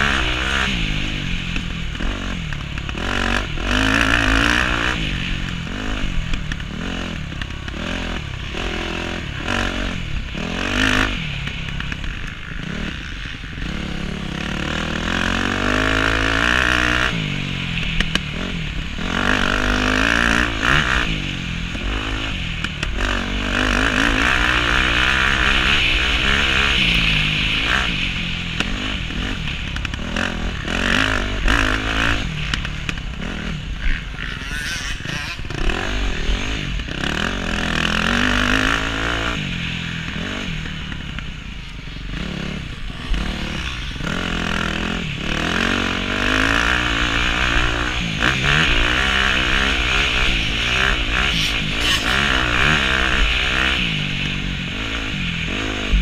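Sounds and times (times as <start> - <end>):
motocross bike engine revving: 0.0 - 56.0
rushing wind noise: 33.2 - 56.0.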